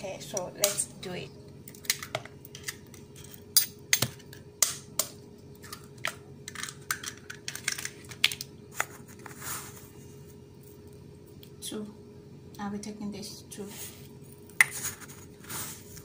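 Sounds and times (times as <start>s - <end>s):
eggshells cracking: 3.9s - 8.6s.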